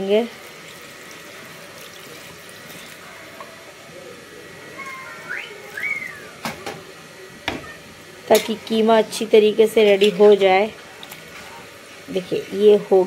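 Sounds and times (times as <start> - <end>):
water pouring into hot pan: 0.0 - 3.4.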